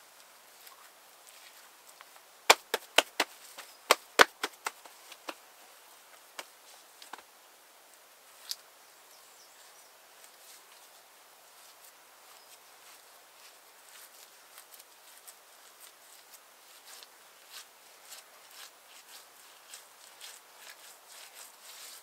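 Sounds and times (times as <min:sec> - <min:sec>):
faint outdoor hiss: 0:00.0 - 0:22.0
sharp knocks: 0:02.5 - 0:05.4.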